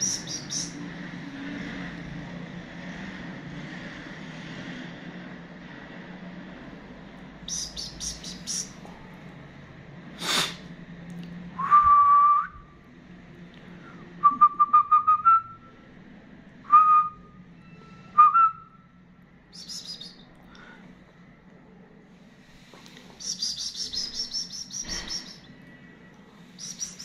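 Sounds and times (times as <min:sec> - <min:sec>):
whistled notes: 0:19.5 - 0:20.3, 0:23.2 - 0:25.5, 0:26.6 - 0:27.0
short high chirps: 0:23.2 - 0:25.5.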